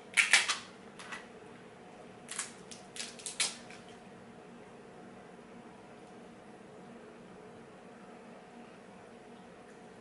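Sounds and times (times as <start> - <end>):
crab shells cracking: 0.1 - 0.7, 2.3 - 3.9.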